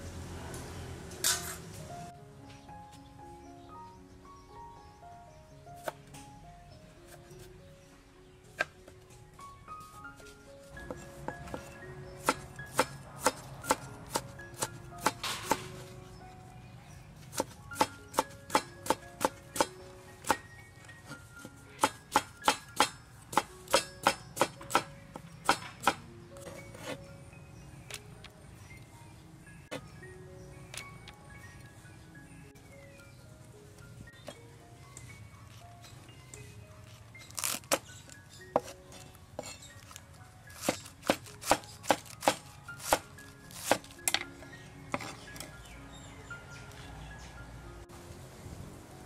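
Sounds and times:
soft background music: 0:00.0 - 0:49.0
cleaver chopping on wooden board: 0:12.2 - 0:15.7, 0:17.3 - 0:20.4, 0:21.8 - 0:26.0, 0:40.6 - 0:44.2.

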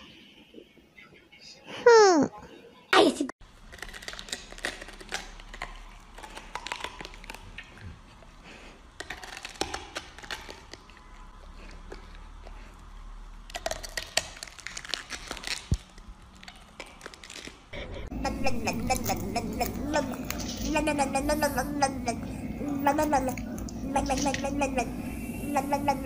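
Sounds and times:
dog crunching cabbage: 0:03.4 - 0:07.9, 0:08.5 - 0:17.8.

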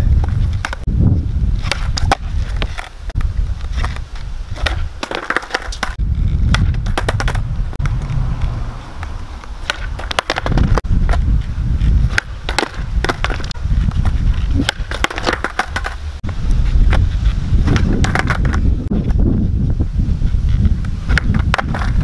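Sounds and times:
skateboard wheels rumbling: 0:00.0 - 0:22.0
skateboard deck clacks: 0:00.2 - 0:00.8, 0:01.6 - 0:04.0, 0:04.6 - 0:08.0, 0:09.0 - 0:11.2, 0:12.1 - 0:16.0, 0:17.6 - 0:18.7, 0:21.1 - 0:22.0.

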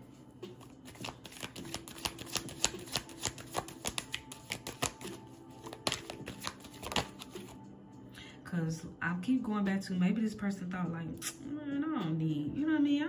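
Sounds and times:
cards being shuffled: 0:00.6 - 0:07.6.

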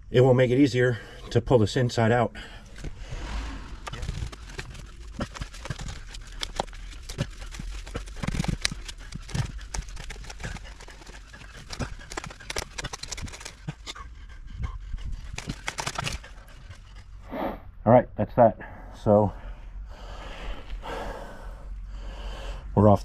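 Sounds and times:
steady low rumble: 0:00.9 - 0:07.7.

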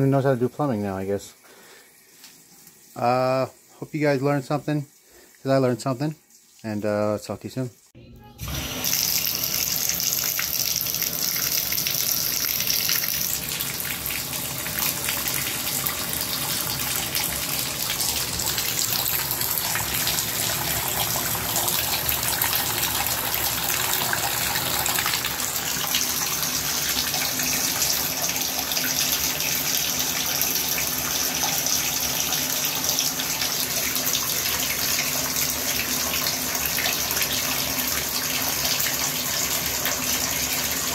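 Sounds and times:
water running into bathtub: 0:08.4 - 0:40.9.

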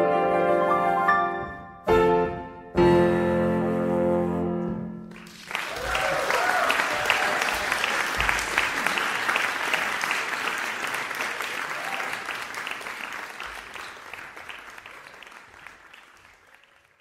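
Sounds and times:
audience applauding: 0:05.1 - 0:17.0.

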